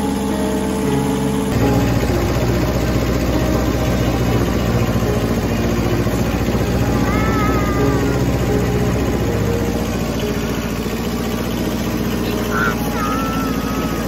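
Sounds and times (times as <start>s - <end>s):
tractor engine running: 0.0s - 14.0s.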